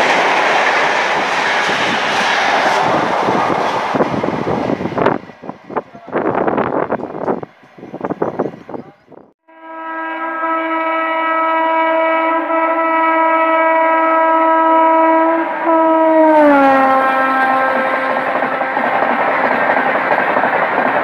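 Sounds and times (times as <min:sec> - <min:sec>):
train coaches rushing past: 0:00.0 - 0:09.1, 0:16.5 - 0:21.0
locomotive horn: 0:09.4 - 0:19.4.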